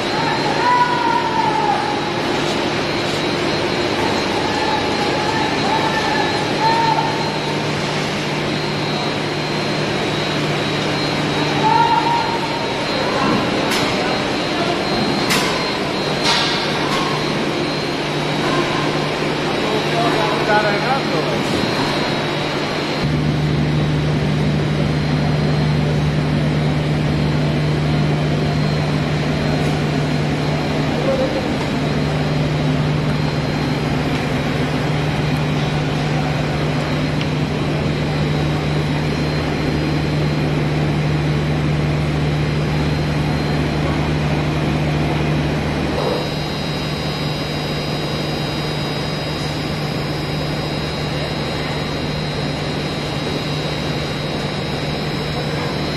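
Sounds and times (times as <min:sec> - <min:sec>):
high machinery whine: 0:00.0 - 0:55.9
electric motor hum: 0:21.7 - 0:55.9.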